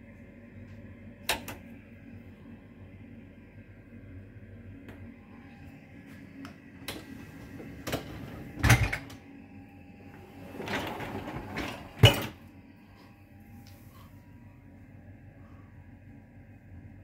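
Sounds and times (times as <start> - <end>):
dishwasher rack rolling in: 7.1 - 9.1, 10.2 - 12.4
racks and crockery clattering: 10.5 - 12.4.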